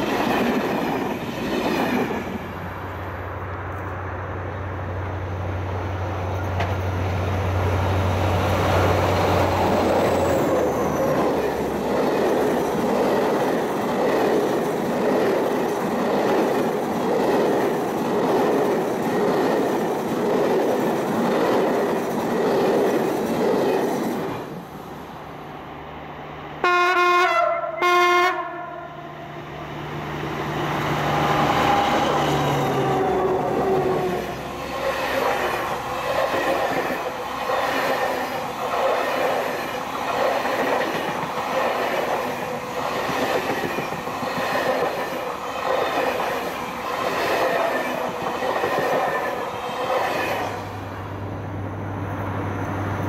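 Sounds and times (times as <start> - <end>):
diesel locomotive engine: 0.0 - 53.0
train coaches clicking over rails: 6.2 - 7.1, 31.0 - 50.8
two-tone locomotive horn: 26.6 - 29.2.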